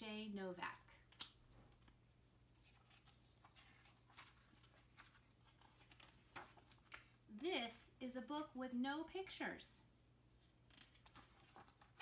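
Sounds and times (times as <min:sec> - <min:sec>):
book pages rustling: 0:01.0 - 0:07.2, 0:10.4 - 0:12.0.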